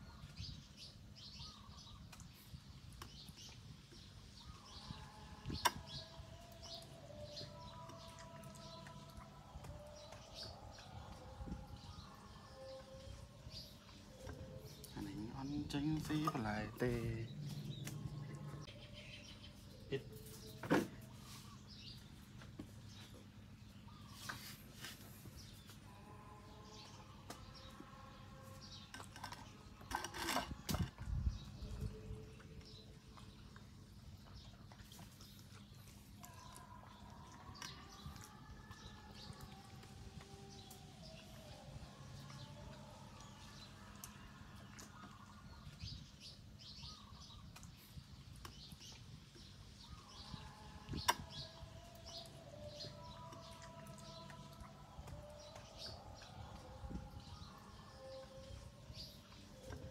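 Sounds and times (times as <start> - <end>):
small birds chirping: 0.0 - 59.9
puppy eating with light clicks: 31.4 - 50.2, 51.6 - 59.9.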